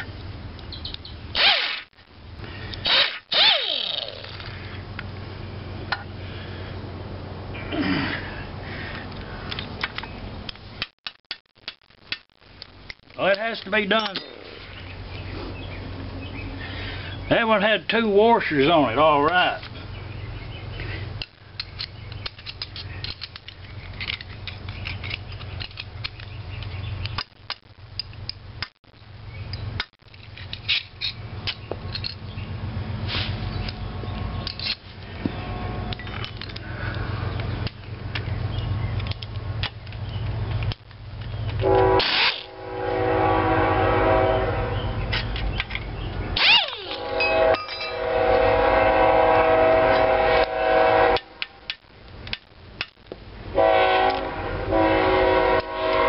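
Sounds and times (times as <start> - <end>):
wrench clinking on bolts: 13.6 - 14.4, 30.1 - 32.2, 45.1 - 48.0
train passing with low rumble: 14.4 - 17.4, 30.4 - 46.4, 47.0 - 52.4, 53.2 - 56.0
train horn blasts: 41.6 - 45.0, 46.9 - 51.5, 53.5 - 56.0.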